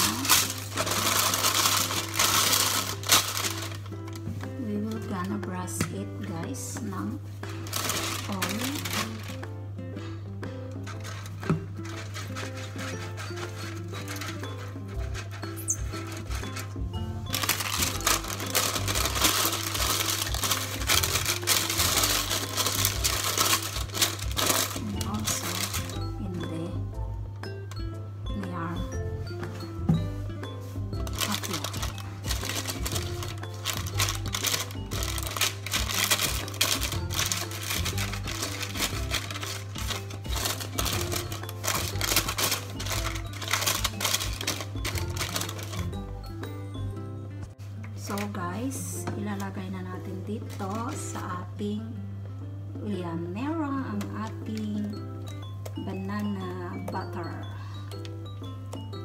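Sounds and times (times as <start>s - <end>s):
baking paper crinkling: 0.0s - 5.4s, 7.4s - 9.5s, 10.7s - 26.1s, 31.0s - 46.2s, 49.4s - 51.3s
background music: 0.0s - 59.0s.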